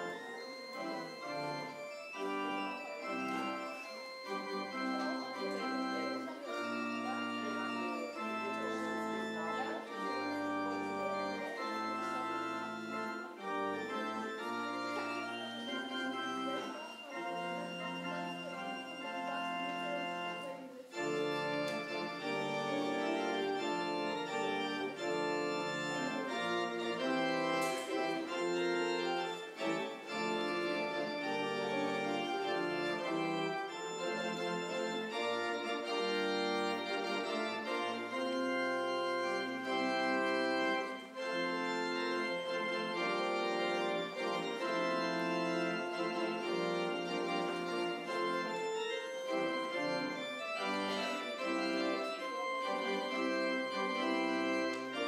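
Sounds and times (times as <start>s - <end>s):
organ playing slow chords: 0.0s - 55.0s.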